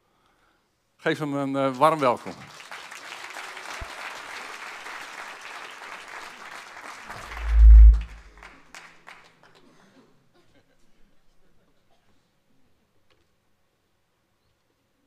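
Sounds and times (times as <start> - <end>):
audience applauding: 2.0 - 9.4
deep low thump: 7.3 - 8.3.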